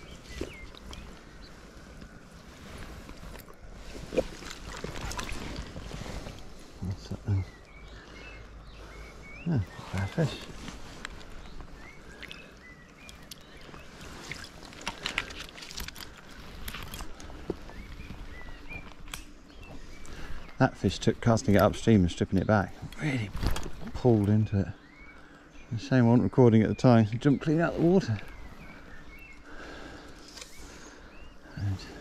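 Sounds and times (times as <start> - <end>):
river water running: 0.0 - 6.9
fish splashing in water: 4.1 - 6.4.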